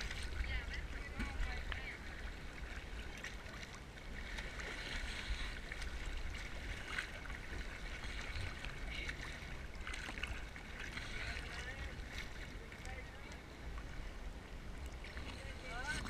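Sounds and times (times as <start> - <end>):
sea water sloshing and lapping: 0.0 - 16.0
small water splashes: 0.0 - 16.0.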